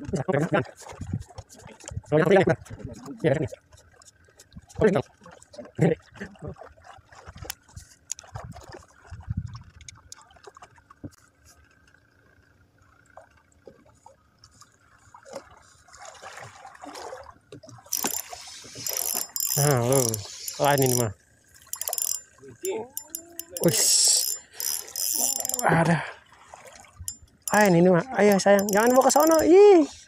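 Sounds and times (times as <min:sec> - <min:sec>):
light water sounds: 0:00.0 - 0:30.0
small clicks and knocks: 0:17.9 - 0:21.0, 0:27.1 - 0:29.4
fishing reel buzzing: 0:17.9 - 0:25.8, 0:27.1 - 0:29.9.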